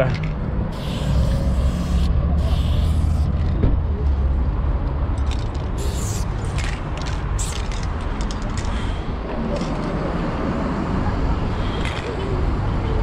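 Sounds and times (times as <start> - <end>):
spray can hissing: 0.7 - 3.4, 5.8 - 7.8.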